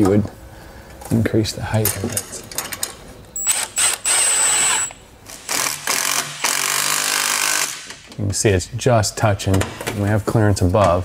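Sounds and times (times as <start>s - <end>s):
power tool motor whine: 3.4s - 8.0s.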